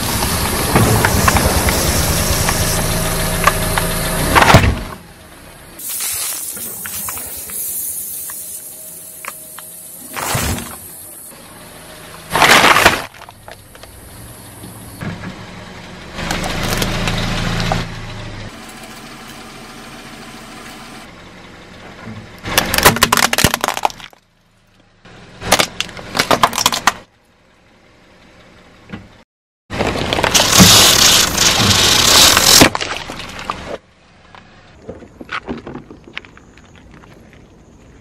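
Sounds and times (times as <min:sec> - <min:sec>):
car tyre crushing plastic toys: 0:12.3 - 0:13.9, 0:22.4 - 0:24.3, 0:25.4 - 0:27.1, 0:29.7 - 0:37.0.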